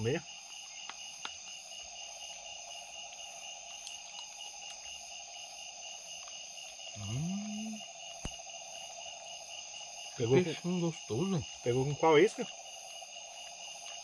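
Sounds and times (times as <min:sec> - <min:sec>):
night insects trilling: 0:00.0 - 0:14.0
person humming: 0:07.0 - 0:07.8.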